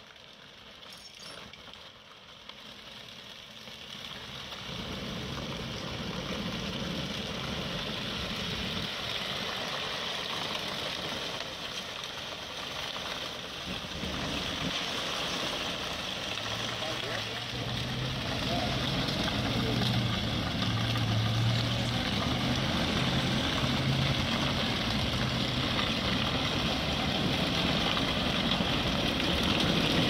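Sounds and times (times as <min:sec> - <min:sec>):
tow truck engine working: 0:11.4 - 0:30.0.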